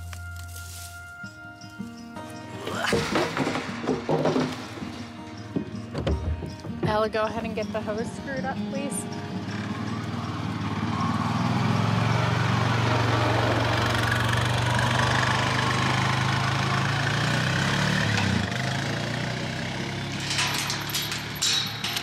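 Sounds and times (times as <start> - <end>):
atv engine running: 5.2 - 22.0
metal chain clinking: 19.8 - 22.0.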